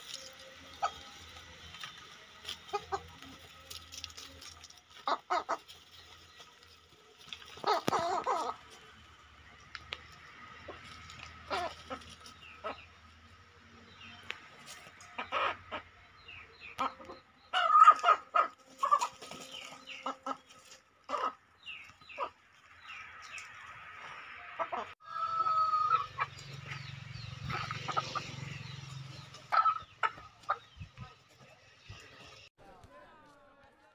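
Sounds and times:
chickens clucking: 0:00.0 - 0:32.5.

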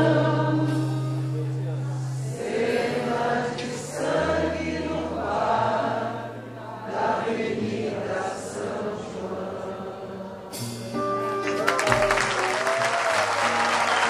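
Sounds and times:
group singing samba song: 0:02.2 - 0:10.7.

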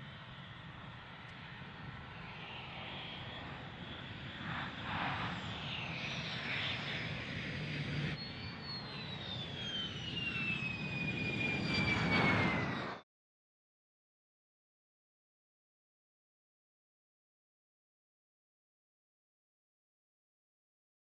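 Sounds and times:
jet engine roar: 0:00.0 - 0:13.0
high jet whine falling in pitch: 0:01.4 - 0:13.0.

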